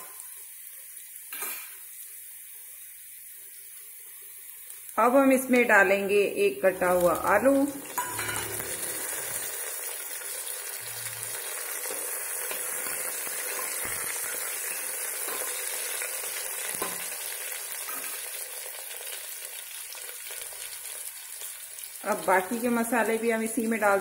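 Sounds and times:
food frying in oil: 0:00.0 - 0:24.0
spoon scraping pot: 0:07.8 - 0:09.5.

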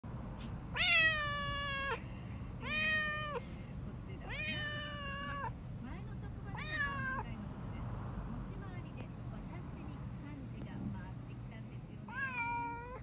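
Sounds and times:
cat meowing: 0:00.7 - 0:02.0, 0:02.6 - 0:03.4, 0:04.2 - 0:05.6, 0:06.5 - 0:07.3, 0:12.1 - 0:13.0.

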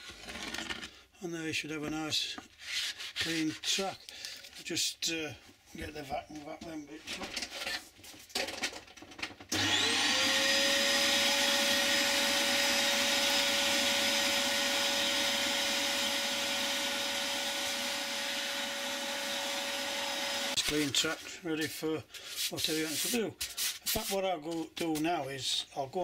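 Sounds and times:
vacuum cleaner motor whine: 0:09.5 - 0:20.6.

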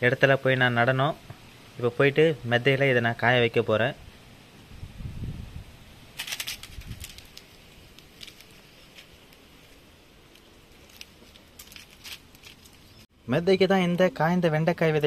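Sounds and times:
dried pods rustling and crackling: 0:06.0 - 0:13.1.

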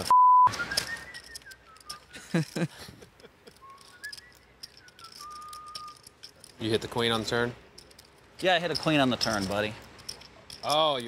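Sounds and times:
person whistling a tune: 0:00.1 - 0:02.2, 0:03.6 - 0:06.1.

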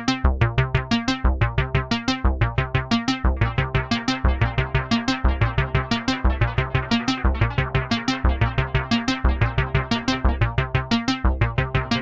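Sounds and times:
repeating synth bass line: 0:01.5 - 0:12.0
synthesizer arpeggio: 0:02.8 - 0:12.0.

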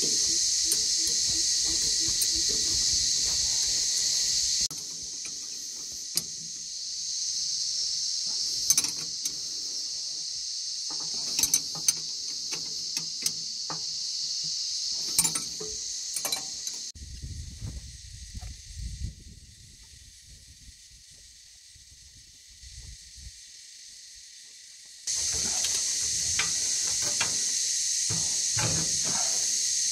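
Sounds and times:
spanner clinking on bolts: 0:00.0 - 0:07.0, 0:08.3 - 0:09.6, 0:10.9 - 0:16.9, 0:25.1 - 0:29.9
high-pitched insect drone: 0:00.0 - 0:29.9.

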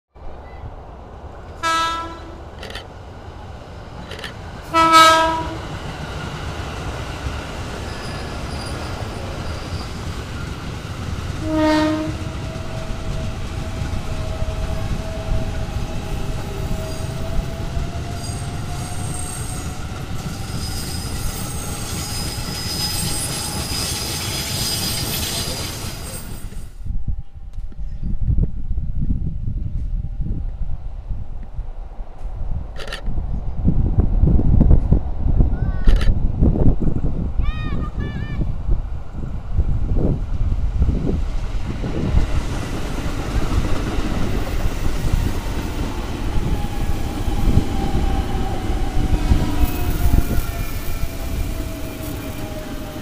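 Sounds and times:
train wheels rumbling on rails: 0:00.2 - 0:53.0
train horn blasts: 0:01.6 - 0:02.5, 0:04.7 - 0:05.7, 0:11.4 - 0:12.6
train motor whine: 0:04.0 - 0:26.6, 0:43.4 - 0:53.0
high-pitched squealing: 0:18.2 - 0:26.6.

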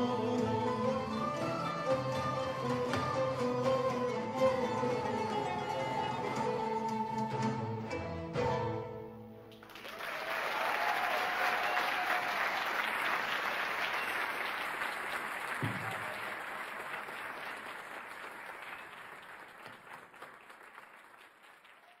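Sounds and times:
audience applauding: 0:09.5 - 0:22.0.

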